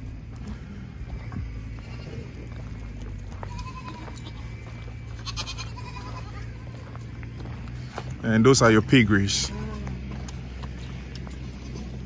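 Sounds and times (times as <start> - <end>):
steady low rumble: 0.0 - 12.0
goats bleating: 1.4 - 7.1, 9.1 - 12.0.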